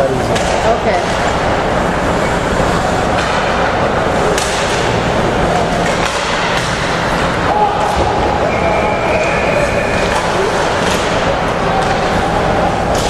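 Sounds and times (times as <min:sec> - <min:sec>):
stick hitting puck: 0:04.4 - 0:05.0, 0:05.6 - 0:08.2.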